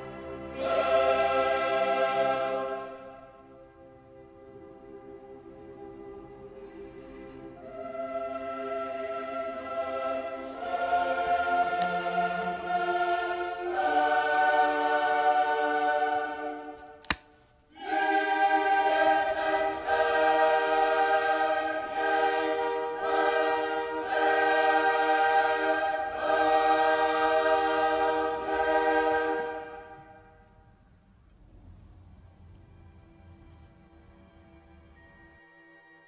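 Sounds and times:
choir singing: 0.0 - 17.0, 17.7 - 30.6
sharp click: 17.0 - 17.3.

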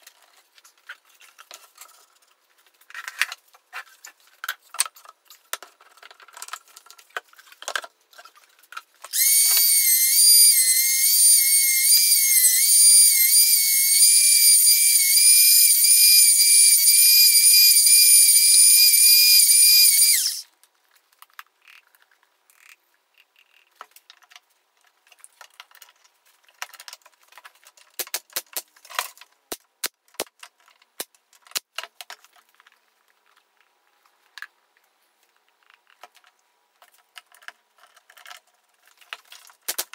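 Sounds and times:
power tool high-pitched whine: 9.1 - 20.4.

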